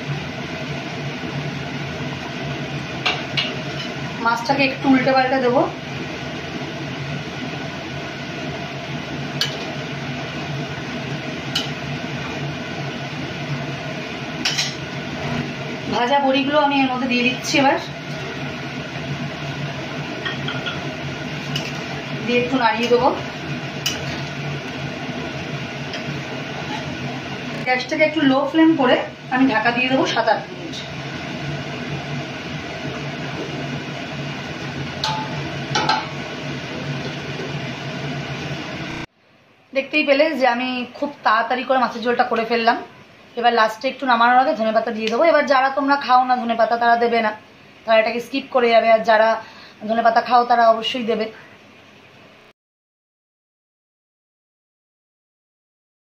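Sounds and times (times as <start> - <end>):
curry boiling and bubbling: 0.0 - 39.1
steady hum and hiss: 0.0 - 52.5.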